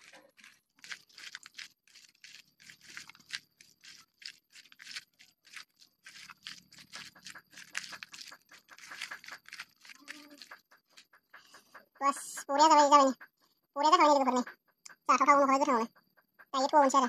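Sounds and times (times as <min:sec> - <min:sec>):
hand squelching raw meat: 0:00.0 - 0:11.8
food scraping against metal bowl: 0:00.0 - 0:12.3.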